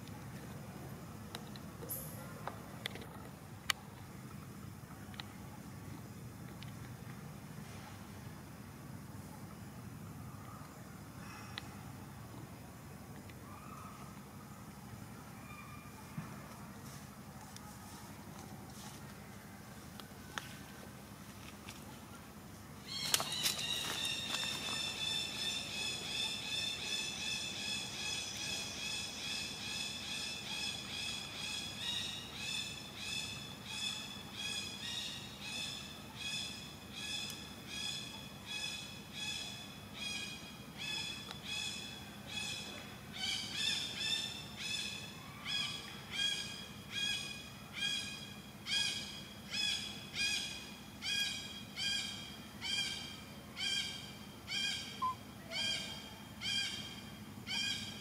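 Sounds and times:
forest animal call high ringing pulses: 22.8s - 58.0s.

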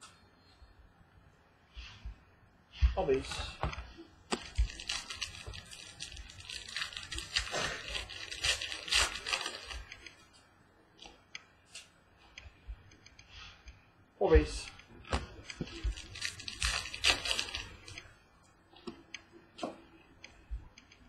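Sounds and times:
wrapper tearing and crinkling: 4.3s - 9.9s, 15.7s - 18.0s
cards ticking as handled: 4.3s - 10.2s, 14.6s - 18.1s.

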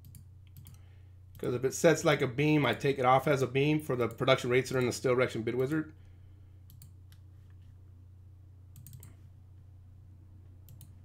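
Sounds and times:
faint computer mouse clicks: 0.0s - 0.8s, 6.7s - 7.2s, 8.7s - 9.2s, 10.7s - 11.0s
steady low hum: 0.0s - 11.0s.

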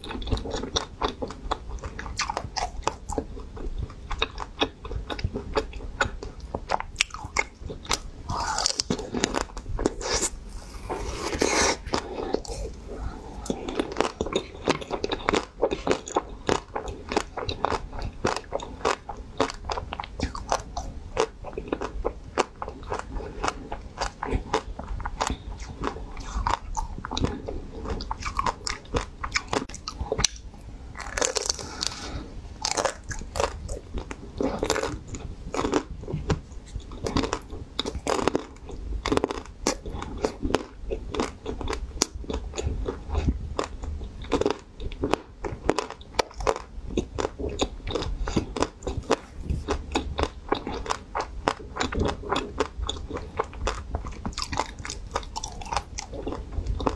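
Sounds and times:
chewing frozen ice cream: 0.0s - 56.9s.

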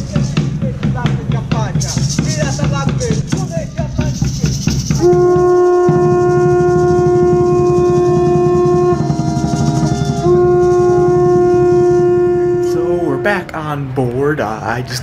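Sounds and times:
horn blowing long note: 5.0s - 13.7s.

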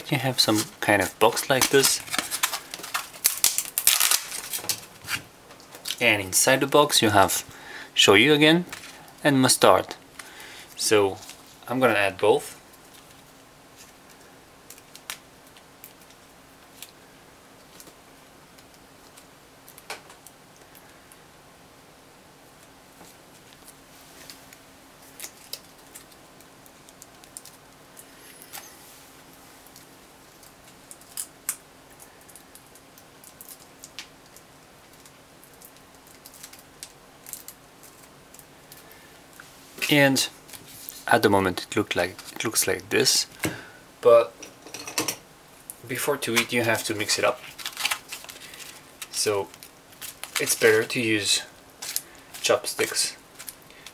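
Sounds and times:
faint steady hum: 0.0s - 53.9s
plastic sachets crinkling: 0.3s - 5.0s, 29.7s - 38.9s, 45.7s - 53.9s.

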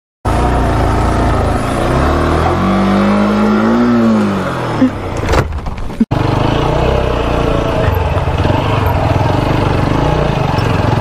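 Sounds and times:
motorcycle engine revving: 0.3s - 11.0s
motorcycle crashing knocks and clatter: 5.0s - 6.0s.

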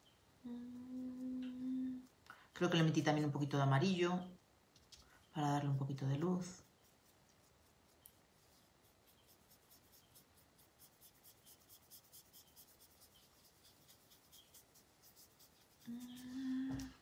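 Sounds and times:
dry paintbrush scratching: 6.1s - 17.0s.

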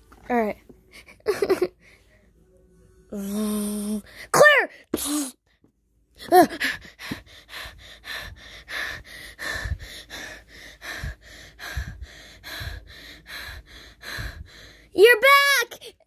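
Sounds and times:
breathy puffs and gasps: 6.2s - 15.0s.

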